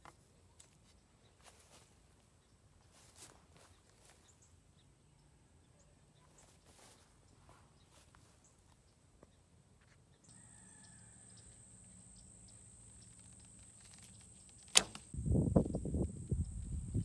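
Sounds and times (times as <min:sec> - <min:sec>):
bowstring snapping: 0:13.3 - 0:15.2.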